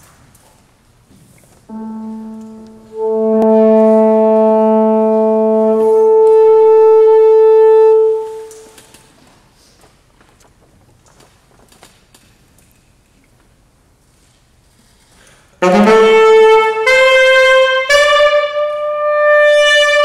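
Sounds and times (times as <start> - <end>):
piano note: 1.7 - 8.8
saxophone tuning note: 1.7 - 8.8.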